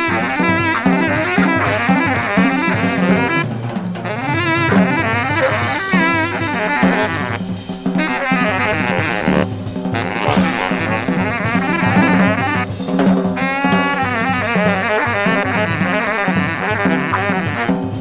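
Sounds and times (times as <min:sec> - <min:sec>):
saxophone lines: 0:00.0 - 0:12.8, 0:13.4 - 0:18.0
busy drums: 0:00.0 - 0:18.0
double bass line: 0:04.1 - 0:12.6.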